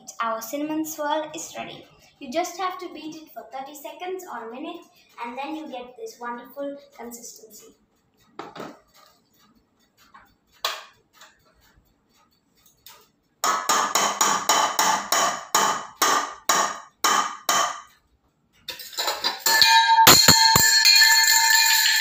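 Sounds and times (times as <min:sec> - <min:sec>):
metallic clatter of pots: 0:18.6 - 0:22.0.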